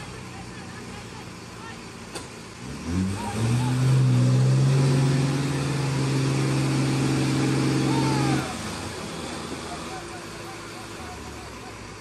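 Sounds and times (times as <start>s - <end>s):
heavy diesel engine revving: 0.0s - 12.0s.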